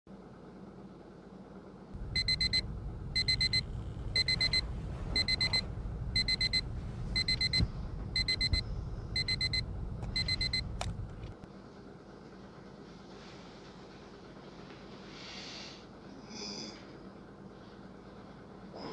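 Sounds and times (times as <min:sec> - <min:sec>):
alarm beeping: 0:02.0 - 0:10.8
low buzz: 0:02.0 - 0:11.4.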